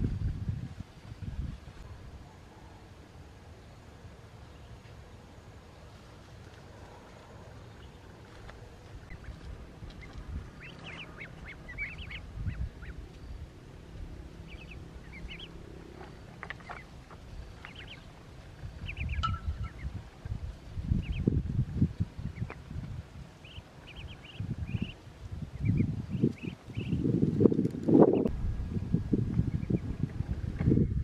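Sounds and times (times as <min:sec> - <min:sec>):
low rumble: 0:06.9 - 0:31.0
ducklings peeping: 0:07.0 - 0:22.8, 0:23.4 - 0:28.3, 0:29.5 - 0:30.4.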